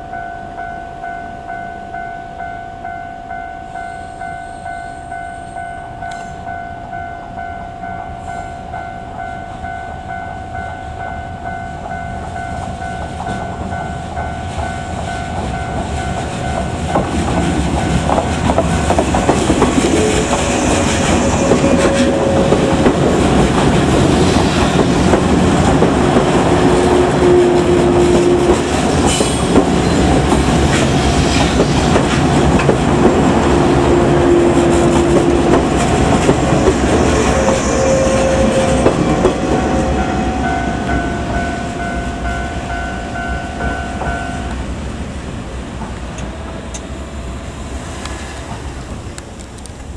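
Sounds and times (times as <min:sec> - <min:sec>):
level-crossing warning bells: 0:00.0 - 0:44.9
passing train rumble: 0:00.0 - 0:49.9
train wheels clacking on rails: 0:11.7 - 0:44.8.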